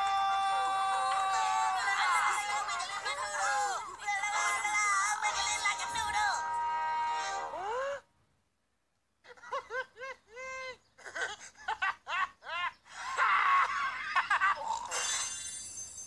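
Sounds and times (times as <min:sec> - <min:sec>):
cartoon character giggling: 0:09.3 - 0:14.9
high sparkling shimmer: 0:14.9 - 0:16.0.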